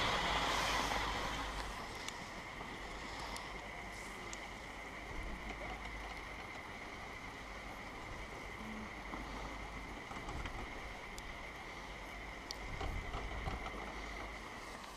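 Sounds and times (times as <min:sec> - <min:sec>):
chairlift machinery running: 0:00.0 - 0:14.9
constant high hum: 0:00.0 - 0:14.9
wind rumbling on microphone: 0:12.2 - 0:14.6.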